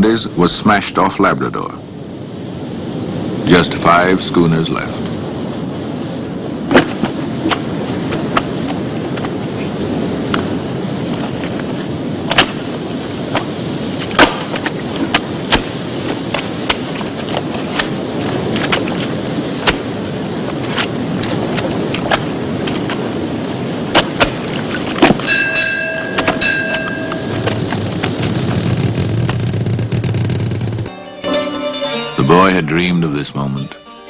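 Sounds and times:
crackly film soundtrack noise: 0:00.0 - 0:34.0
sharp pops: 0:06.7 - 0:09.4, 0:13.3 - 0:23.1, 0:23.9 - 0:25.3, 0:26.1 - 0:30.9.

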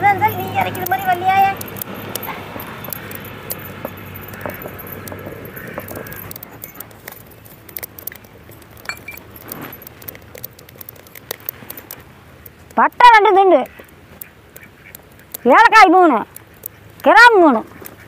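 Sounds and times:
stone roller grinding seeds: 0:00.1 - 0:11.8
light scrapes and clinks: 0:00.2 - 0:12.0.

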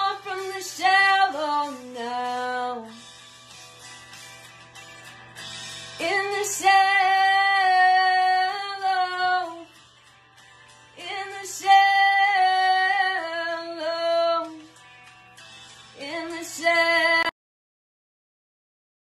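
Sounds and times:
young woman singing: 0:00.0 - 0:03.0, 0:06.0 - 0:09.8, 0:11.0 - 0:14.8, 0:16.0 - 0:17.3.

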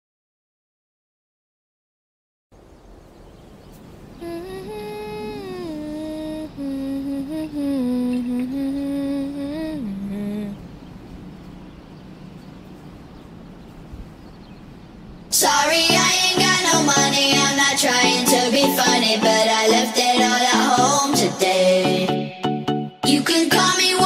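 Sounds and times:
slow wordless melody: 0:04.2 - 0:11.1, 0:15.4 - 0:24.0
steady hum: 0:04.2 - 0:24.0
loud electronic dance music: 0:15.9 - 0:24.0.

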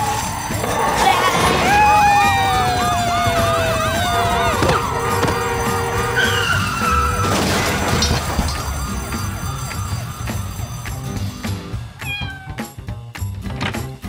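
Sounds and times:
warbling siren-like wail: 0:00.0 - 0:10.4
cartoon music: 0:00.0 - 0:12.9.

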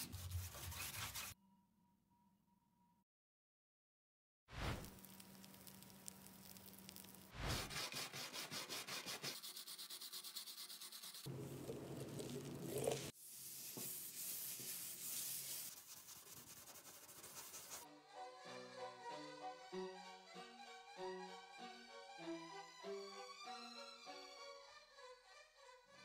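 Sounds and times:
cloth rubbing on metal: 0:00.0 - 0:01.4.

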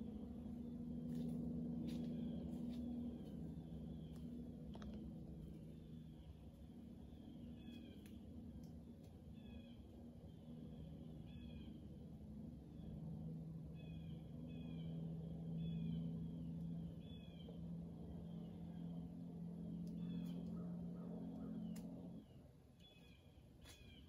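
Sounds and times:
steady low drone: 0:00.0 - 0:24.0.

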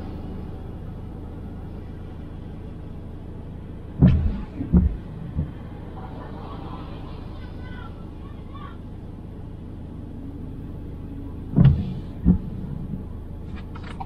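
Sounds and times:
car engine rumble: 0:00.0 - 0:14.0
dull thumps: 0:04.0 - 0:05.6, 0:11.5 - 0:12.6.

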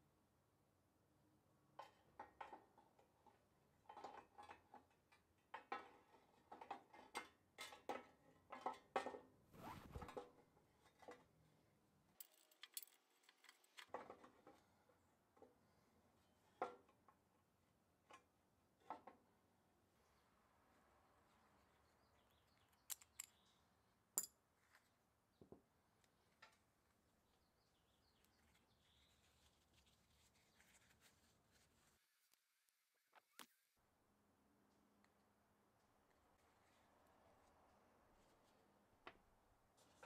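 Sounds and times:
metal parts clinking and knocking: 0:12.2 - 0:13.9, 0:22.9 - 0:23.4.

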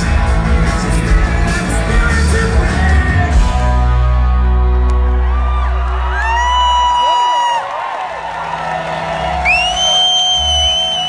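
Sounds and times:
live rock band playing: 0:00.0 - 0:07.0
crowd whooping: 0:04.4 - 0:11.0.

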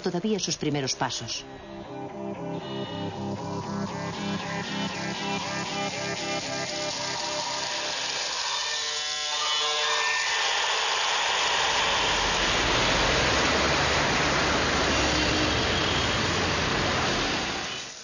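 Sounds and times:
low hum: 0:01.3 - 0:08.6
music: 0:01.3 - 0:10.2
loud steady rushing noise: 0:01.4 - 0:18.0.

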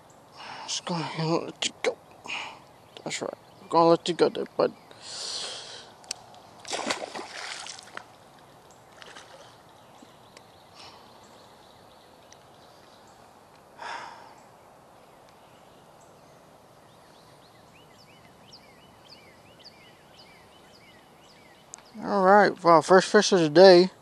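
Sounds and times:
faint creek ambience: 0:00.0 - 0:24.0
water splash: 0:06.6 - 0:08.2, 0:09.0 - 0:09.6.

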